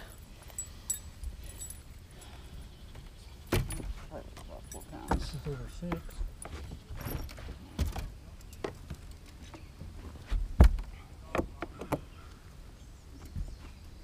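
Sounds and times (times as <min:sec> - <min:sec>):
loud deep thump: 0:10.5 - 0:10.9.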